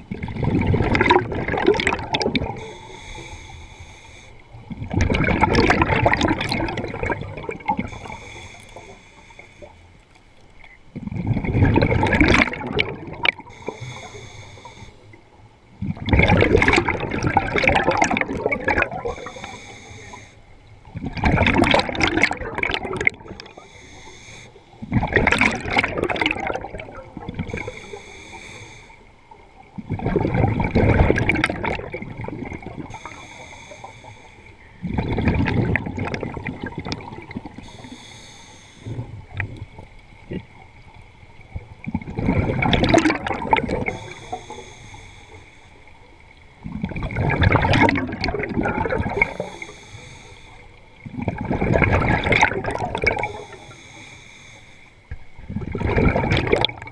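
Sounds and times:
exhaled bubbles gushing underwater: 0:00.0 - 0:03.5, 0:04.4 - 0:08.9, 0:10.6 - 0:24.1, 0:24.7 - 0:28.1, 0:29.1 - 0:33.2, 0:33.8 - 0:38.0, 0:38.8 - 0:44.9, 0:45.8 - 0:53.8, 0:55.1 - 0:56.9
regulator hissing inhale: 0:02.6 - 0:04.6, 0:07.8 - 0:10.0, 0:13.4 - 0:15.3, 0:19.0 - 0:20.5, 0:23.3 - 0:24.9, 0:27.4 - 0:29.3, 0:32.8 - 0:34.8, 0:37.5 - 0:39.2, 0:43.8 - 0:46.1, 0:49.2 - 0:51.0, 0:53.2 - 0:55.1.

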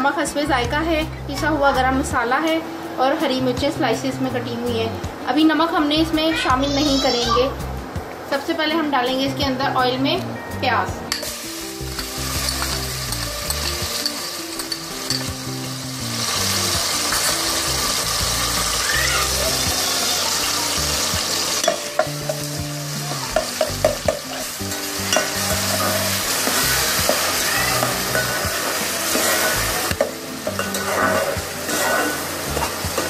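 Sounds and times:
onion sizzling in hot oil: 0:11.1 - 0:33.0
spoon scraping metal pot: 0:11.9 - 0:15.4, 0:23.4 - 0:33.0.

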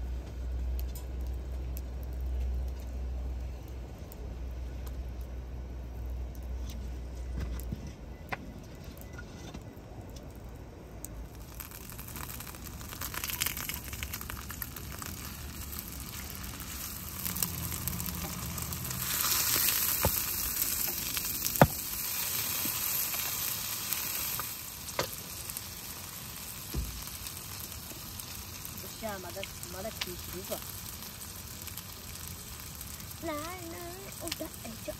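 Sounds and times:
steak sizzling in a skillet: 0:11.3 - 0:34.9.

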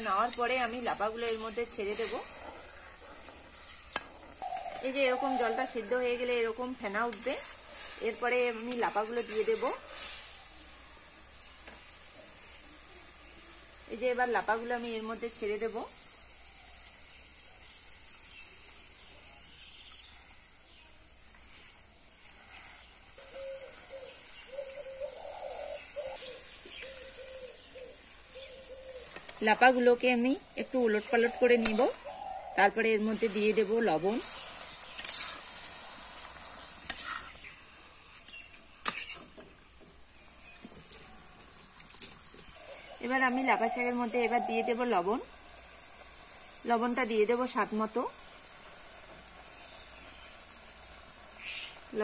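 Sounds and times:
boiling water hissing: 0:00.0 - 0:52.0
metal spatula scraping pot: 0:34.8 - 0:35.6, 0:36.5 - 0:37.5, 0:38.8 - 0:39.4.

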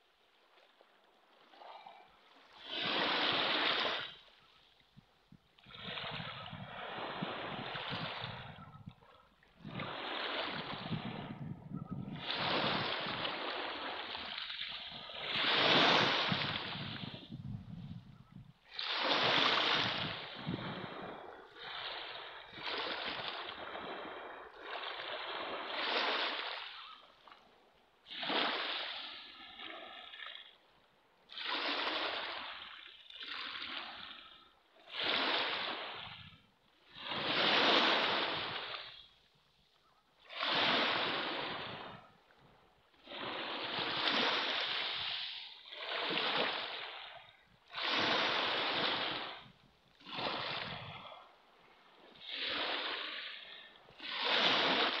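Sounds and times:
waves washing up pebble beach: 0:02.6 - 0:04.2, 0:12.2 - 0:17.4, 0:18.7 - 0:26.8, 0:36.9 - 0:39.0, 0:43.0 - 0:51.2, 0:52.1 - 0:55.0.

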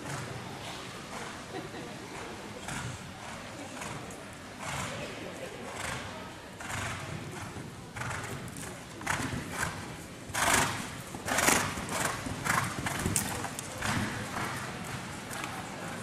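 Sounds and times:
horse hoofbeats cantering: 0:06.7 - 0:15.7.

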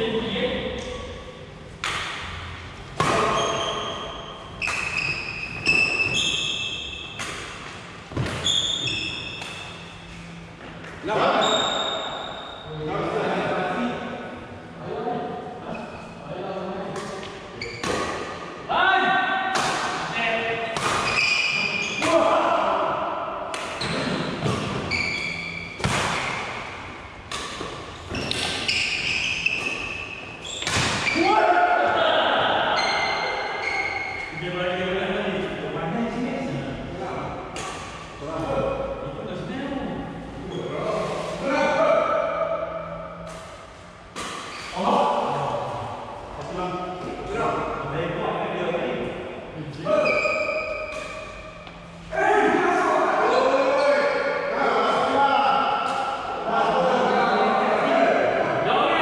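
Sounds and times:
rackets striking shuttlecock: 0:01.8 - 0:03.4, 0:04.6 - 0:06.2, 0:07.0 - 0:09.9, 0:19.5 - 0:20.1, 0:20.7 - 0:22.2, 0:25.4 - 0:30.0, 0:42.8 - 0:44.7, 0:50.2 - 0:51.9
shoes squeaking on court floor: 0:03.0 - 0:07.4, 0:08.1 - 0:12.6, 0:17.2 - 0:18.2, 0:20.9 - 0:22.0, 0:23.8 - 0:26.6, 0:27.5 - 0:31.2, 0:32.8 - 0:34.4, 0:44.4 - 0:44.8, 0:49.9 - 0:52.0.

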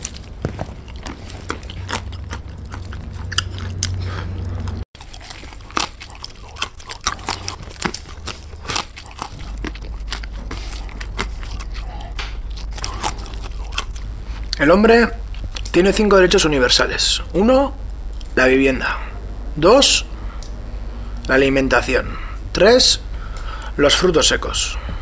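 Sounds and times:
chewing: 0:00.0 - 0:14.6.

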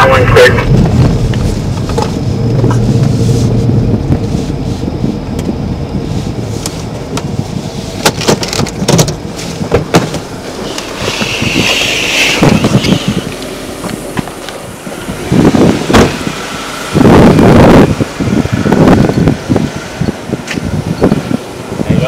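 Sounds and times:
low engine hum: 0:00.0 - 0:22.0
car door opening: 0:08.0 - 0:14.6, 0:15.6 - 0:16.4.

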